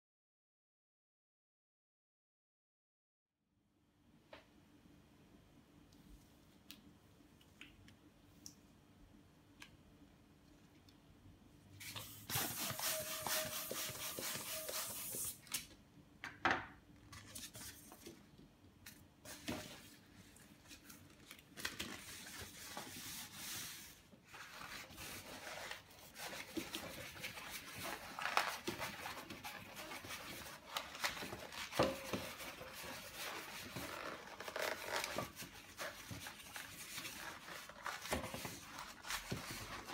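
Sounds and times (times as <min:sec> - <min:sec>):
balloon latex squeaking and rubbing: 0:12.3 - 0:15.3, 0:32.0 - 0:35.8.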